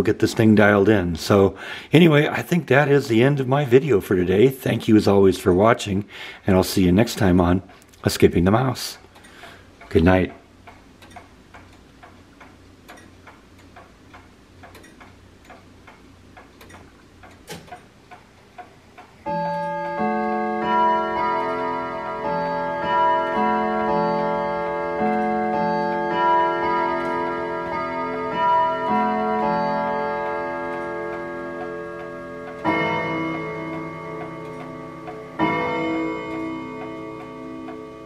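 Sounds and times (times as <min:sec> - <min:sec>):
grandfather clock ticking: 0:06.8 - 0:38.0
clock chime melody: 0:19.2 - 0:38.0.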